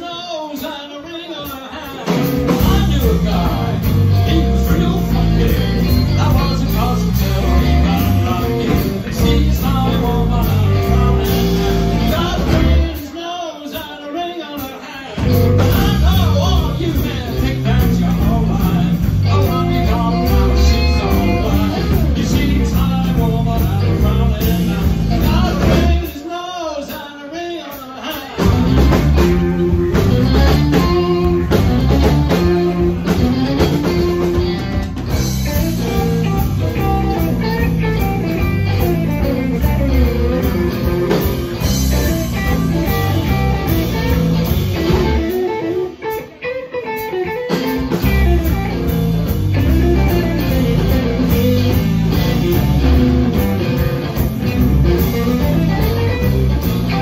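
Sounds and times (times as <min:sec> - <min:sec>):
person singing: 0:00.0 - 0:57.0
electric guitar: 0:00.6 - 0:27.0, 0:27.6 - 0:57.0
bass and drums: 0:01.4 - 0:13.2, 0:14.6 - 0:27.0, 0:27.7 - 0:57.0.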